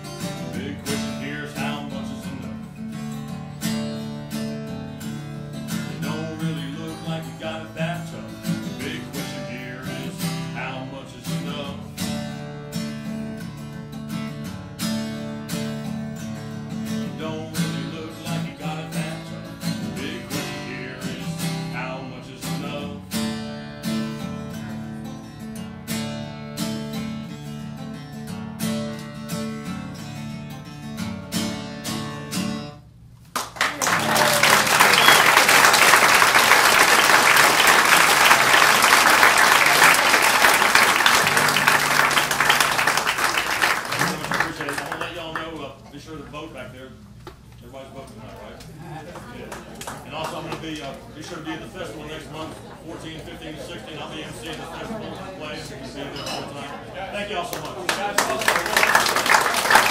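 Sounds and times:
acoustic blues guitar: 0.0 - 45.8, 58.1 - 59.9
audience applause: 33.4 - 45.2, 57.5 - 59.9.

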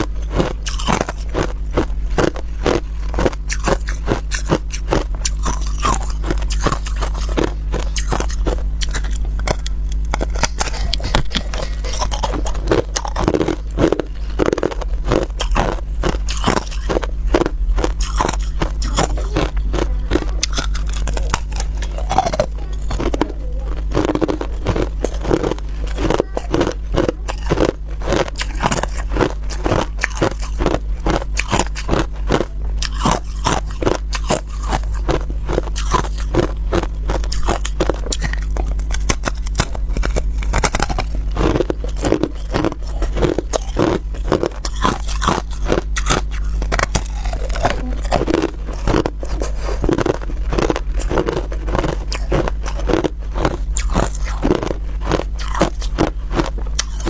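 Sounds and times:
steady low hum: 0.0 - 57.0
crushed ice crunching: 0.2 - 57.0.

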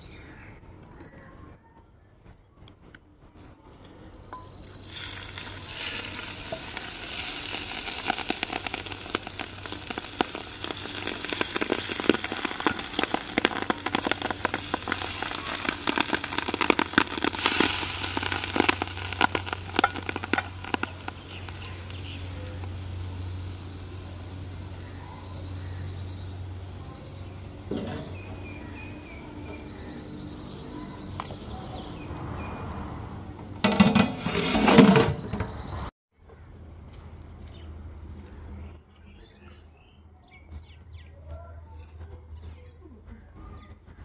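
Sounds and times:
hot ghee sizzling and crackling: 4.8 - 31.3.

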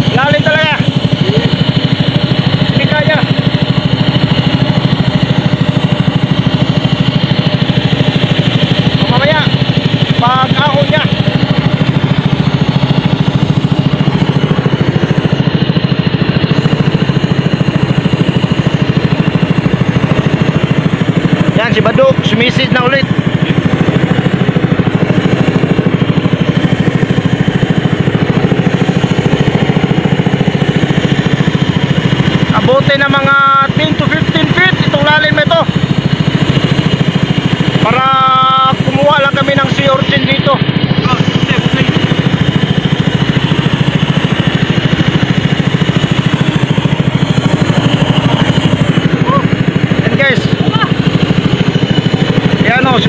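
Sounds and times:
small engine idling: 0.0 - 53.0.

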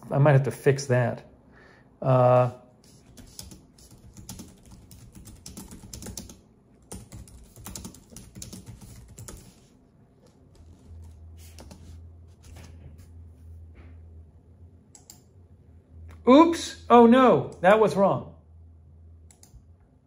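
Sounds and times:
fingertips tapping touchscreen: 7.4 - 9.7
low hum: 9.3 - 20.0.

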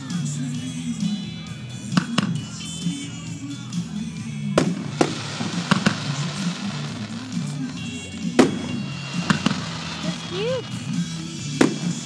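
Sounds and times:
background music: 0.0 - 12.0
fireworks bangs: 4.5 - 12.0.

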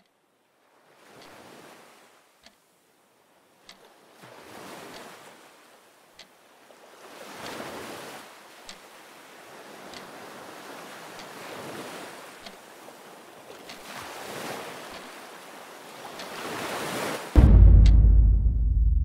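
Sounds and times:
surf breaking on a beach: 6.7 - 17.4.

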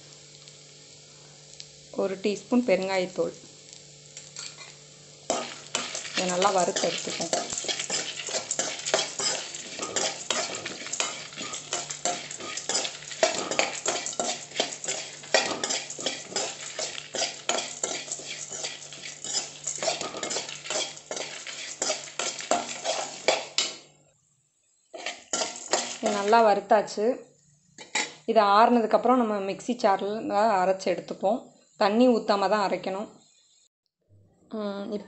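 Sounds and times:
seeds rattling in pan: 5.3 - 23.8, 25.0 - 26.5
spatula scraping metal pan: 5.3 - 23.8, 24.9 - 26.3, 27.8 - 28.2.

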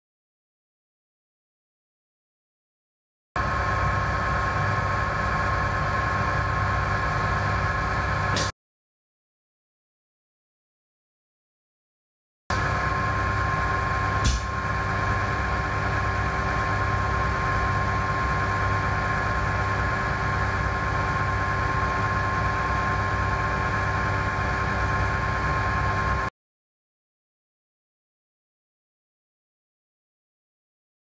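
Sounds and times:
vacuum pump motor hum: 3.4 - 8.5, 12.5 - 26.3.

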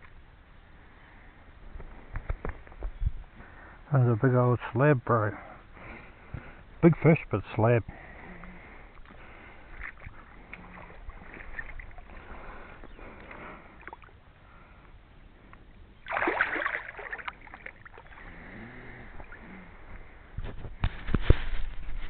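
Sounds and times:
small water sounds: 4.9 - 20.5
fish splashing in water: 9.0 - 14.2, 16.0 - 19.8.

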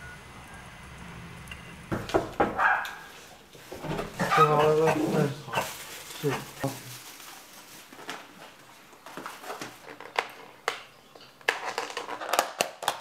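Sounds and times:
plastic bag rustling: 3.0 - 10.6
plastic lids crackling and snapping: 8.0 - 13.0.

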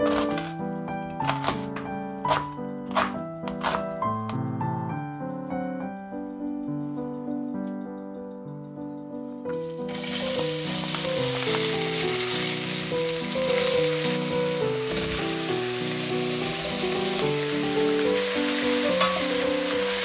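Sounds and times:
onion sizzling in hot oil: 9.6 - 20.0.

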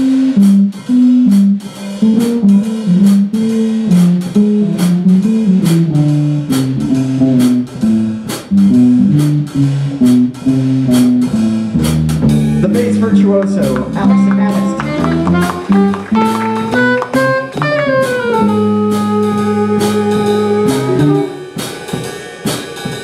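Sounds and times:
drum kit keeping time: 0.0 - 23.0
plucked bass solo line: 2.0 - 21.4.

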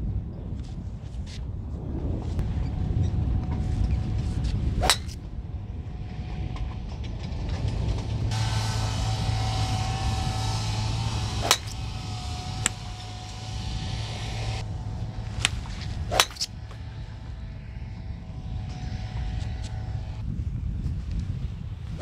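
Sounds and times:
steady low hum: 0.0 - 22.0
golf club striking ball: 4.8 - 5.2, 8.3 - 17.4.

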